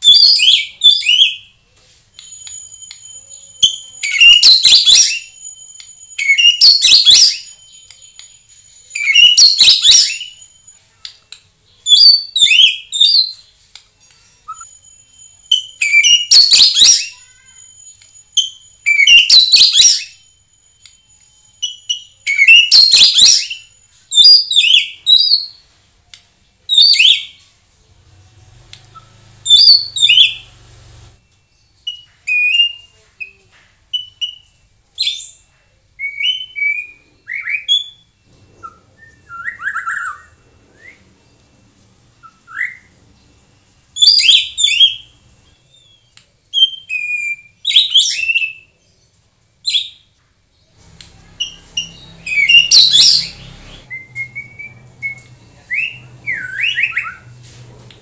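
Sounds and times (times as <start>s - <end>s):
bird singing whistled phrases: 2.2s - 10.7s, 14.5s - 21.0s, 21.6s - 25.6s, 31.5s - 35.4s, 36.0s - 41.1s, 42.2s - 42.9s, 44.0s - 48.7s, 51.3s - 57.4s.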